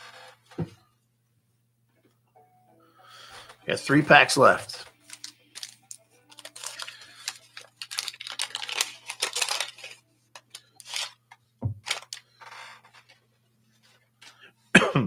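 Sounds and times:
wax-paper wrapper tearing and crinkling: 5.0 - 11.2, 11.8 - 12.3.

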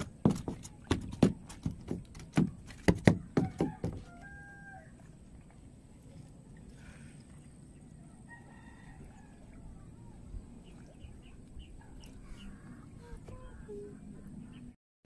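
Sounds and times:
rooster crowing faintly: 3.1 - 5.2, 8.0 - 10.3.

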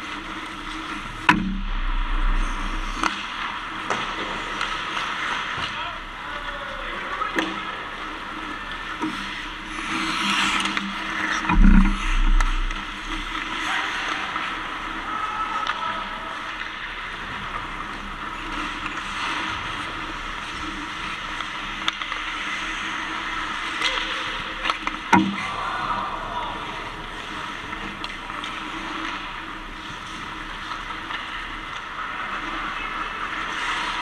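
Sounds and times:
heavy thump: 1.3 - 3.0, 11.5 - 13.3
skate blades scraping ice: 8.1 - 14.8, 27.2 - 34.0.

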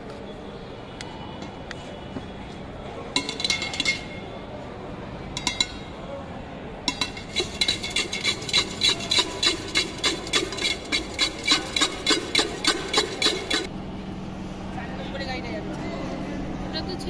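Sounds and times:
spoon clanking in steel tin: 3.2 - 4.2, 5.4 - 5.9, 6.9 - 13.7.

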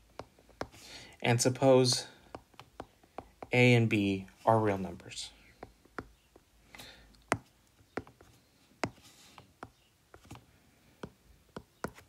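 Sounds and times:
stylus tapping on glass screen: 1.9 - 3.6.

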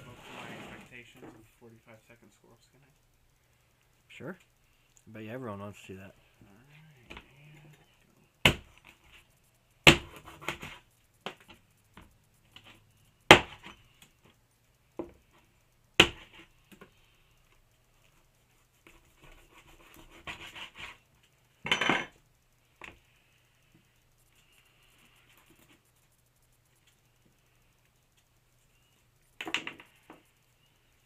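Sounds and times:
rustling: 0.0 - 2.3.

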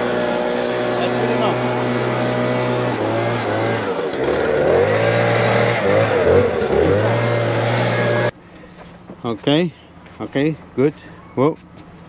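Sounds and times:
leaf blower engine revving: 0.0 - 8.4.

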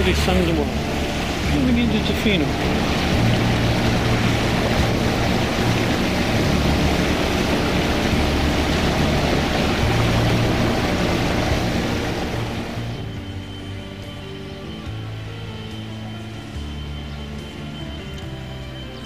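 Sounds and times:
wind and water rushing: 0.0 - 14.4
boat engine droning: 0.0 - 19.0.

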